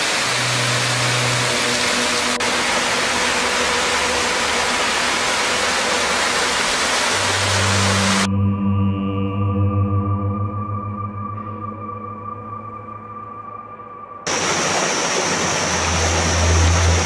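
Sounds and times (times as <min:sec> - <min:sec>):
waterfall pouring over rocks: 0:00.0 - 0:08.3, 0:14.3 - 0:17.0.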